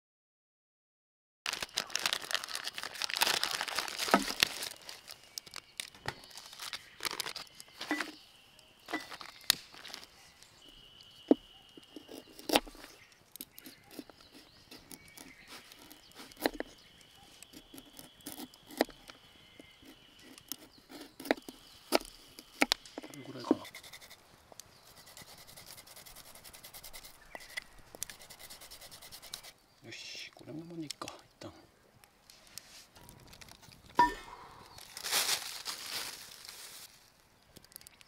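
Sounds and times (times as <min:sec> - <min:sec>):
plastic crinkling: 0:01.5 - 0:08.2, 0:08.9 - 0:23.2, 0:32.3 - 0:34.0, 0:34.6 - 0:38.0.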